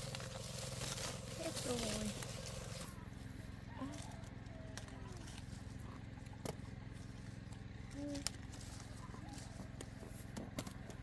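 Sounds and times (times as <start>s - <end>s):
steady low hum: 0.0s - 11.0s
fruit stems snapping: 3.9s - 5.5s, 7.5s - 11.0s.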